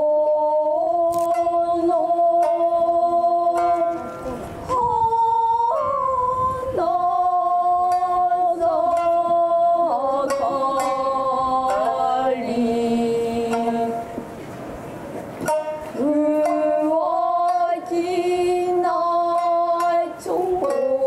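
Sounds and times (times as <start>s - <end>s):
faint sharp plucks: 13.4s - 21.0s.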